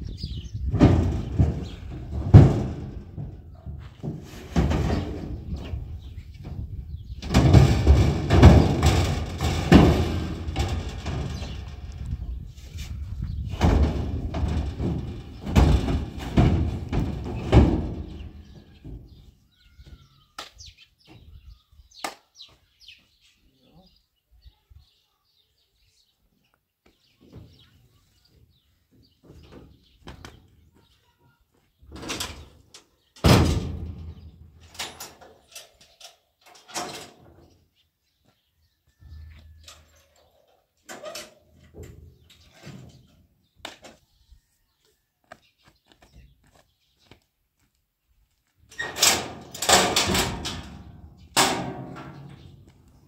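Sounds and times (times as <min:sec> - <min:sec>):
metal drums thumping in truck bed: 0:00.5 - 0:12.2, 0:13.4 - 0:19.2, 0:33.2 - 0:34.7, 0:48.8 - 0:52.7
loud metal bangs: 0:00.6 - 0:06.6, 0:07.2 - 0:12.2, 0:13.4 - 0:19.2, 0:33.2 - 0:34.5, 0:48.8 - 0:52.6
metal clanks: 0:07.2 - 0:12.2, 0:13.5 - 0:19.2, 0:48.7 - 0:52.8.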